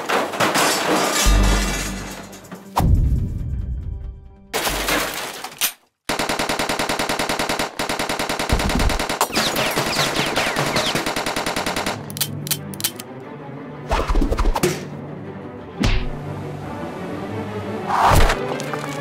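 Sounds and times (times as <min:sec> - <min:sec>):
submachine gun automatic fire: 0:06.1 - 0:12.1
sharp clicks: 0:10.7 - 0:13.1.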